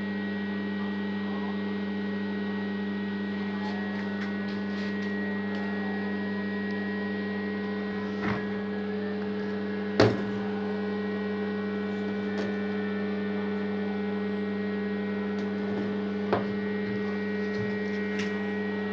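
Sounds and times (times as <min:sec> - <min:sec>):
welding transformer hum: 0:00.0 - 0:18.9.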